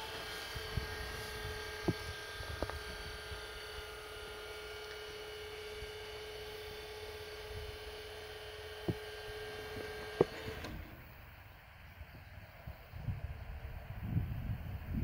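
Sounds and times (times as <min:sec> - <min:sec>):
barrier motor humming: 0:00.0 - 0:15.0.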